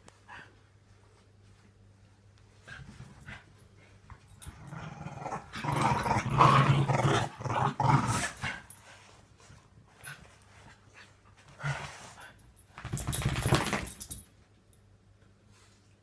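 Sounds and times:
dogs growling: 4.6s - 8.7s.

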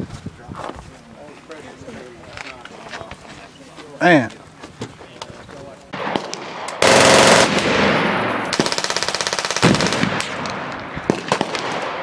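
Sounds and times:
single gunshots: 5.9s - 8.7s, 9.6s - 12.0s
machine gun fire: 6.0s - 12.0s.

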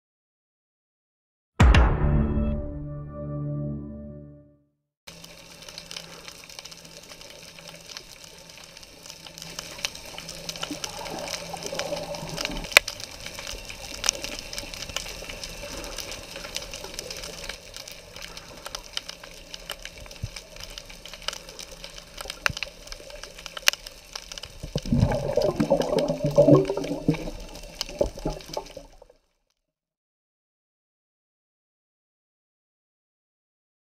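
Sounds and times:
underwater hiss: 5.1s - 29.1s
underwater bubbling breath: 10.2s - 19.3s, 24.6s - 29.1s.

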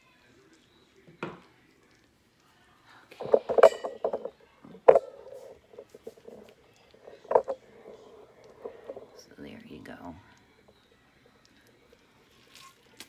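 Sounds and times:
metal utensils clinking on glass: 3.2s - 9.2s.

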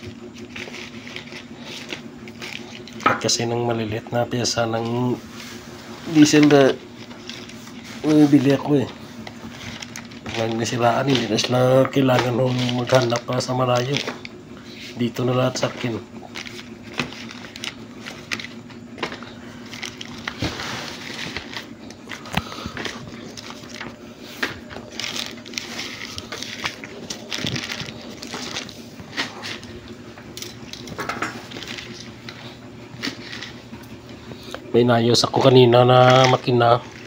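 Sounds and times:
plastic packets crinkling: 0.0s - 5.1s, 6.1s - 37.0s
parts clicking and knocking: 6.2s - 14.4s, 15.2s - 34.6s, 35.3s - 37.0s.

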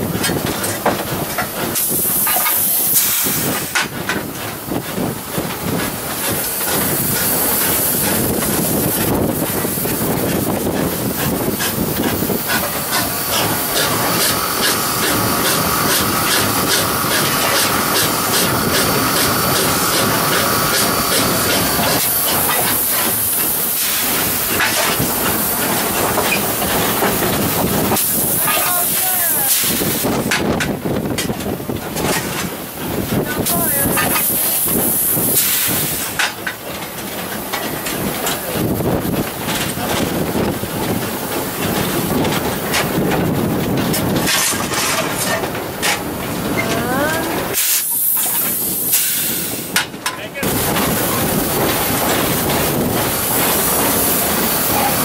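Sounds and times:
steam hissing: 0.0s - 30.7s, 31.4s - 55.0s
locomotive knocks and clanks: 0.0s - 55.0s.

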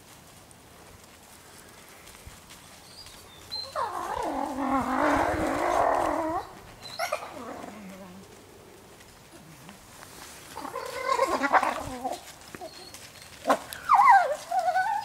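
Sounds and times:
wolves whining and yelping: 3.0s - 7.8s, 10.5s - 15.0s.

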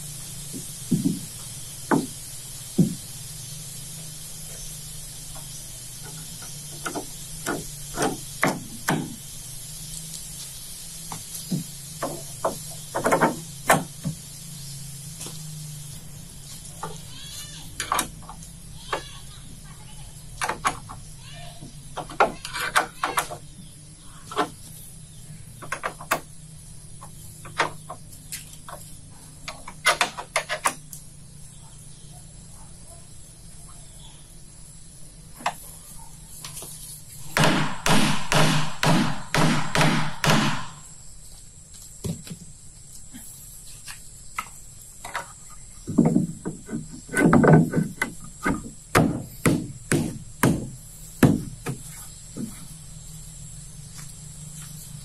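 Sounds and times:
low steady hum: 0.0s - 29.8s
sharp knocks and taps: 0.5s - 1.3s, 2.8s - 3.0s, 11.1s - 14.2s, 43.9s - 52.6s.

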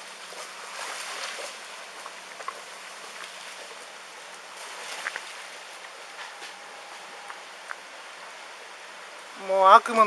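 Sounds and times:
floodwater rushing: 0.0s - 10.0s
small clicks and splashes: 0.1s - 6.0s.

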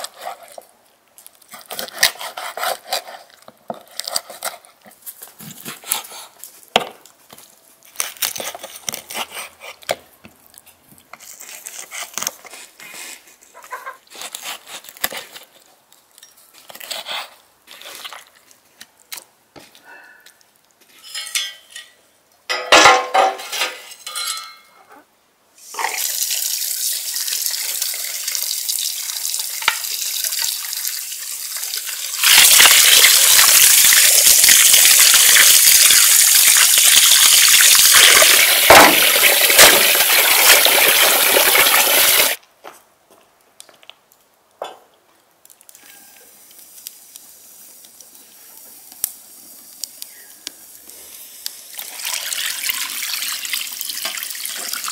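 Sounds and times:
running water pouring into bowl: 25.9s - 42.4s, 51.7s - 54.9s.

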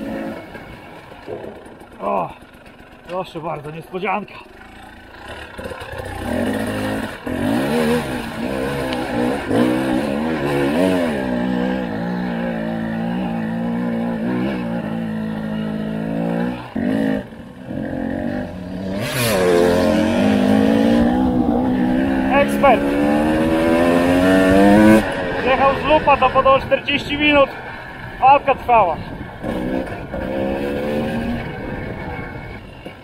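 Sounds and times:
motorcycle engine revving: 0.0s - 33.0s.

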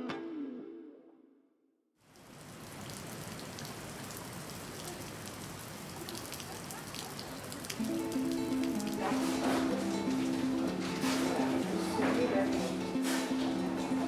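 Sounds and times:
steady rain falling: 2.0s - 14.0s.

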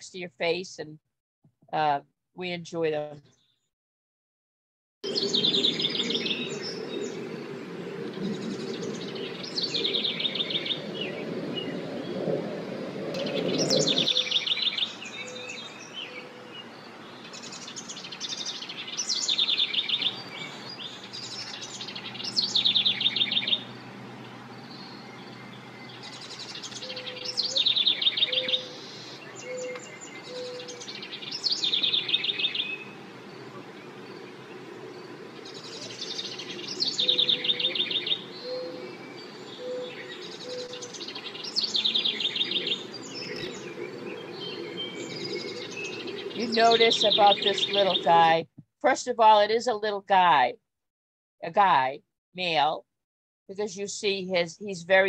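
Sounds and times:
birds trilling chirps: 5.0s - 48.4s.

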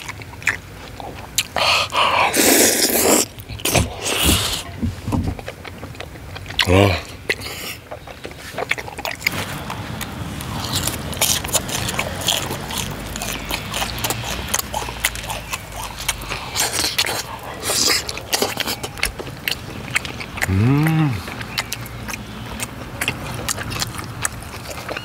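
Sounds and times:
slurping: 0.0s - 25.0s
wet chewing: 0.0s - 25.0s
hissing breaths through lips: 1.4s - 4.8s, 9.3s - 18.8s.

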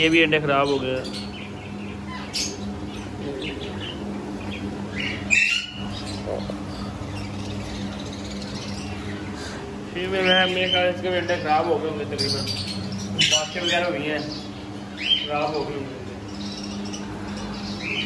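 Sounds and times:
parakeets chirping and calling: 0.0s - 18.0s
steady low hum: 0.0s - 18.0s.

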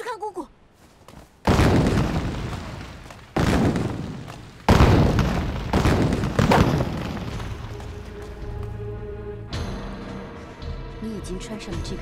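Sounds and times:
heavy booms: 1.5s - 8.0s.

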